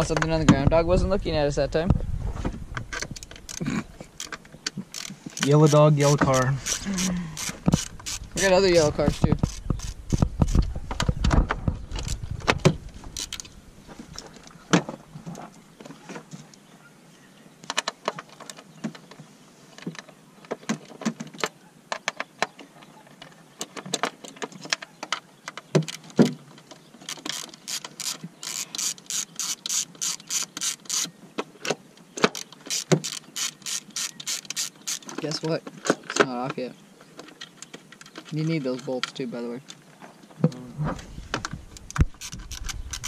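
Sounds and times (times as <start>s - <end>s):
socket ratchet clicking: 2.9s - 10.7s, 13.2s - 13.5s, 27.1s - 31.1s, 32.4s - 35.2s, 41.7s - 43.0s.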